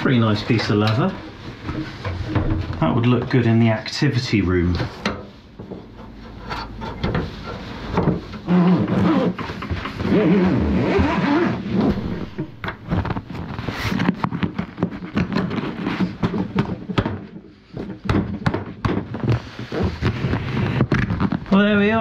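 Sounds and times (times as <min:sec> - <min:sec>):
steady low tone: 0:11.7 - 0:13.8
wavering pitched sound: 0:11.8 - 0:13.6.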